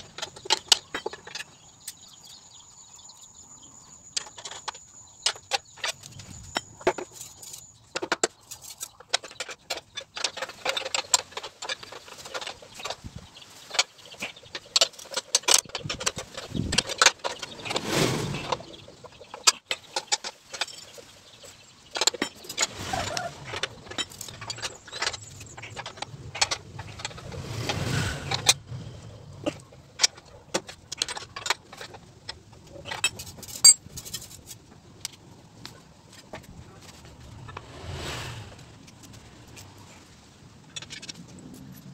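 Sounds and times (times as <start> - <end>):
spanners clinking on steel: 19.3 - 27.3, 29.5 - 34.6.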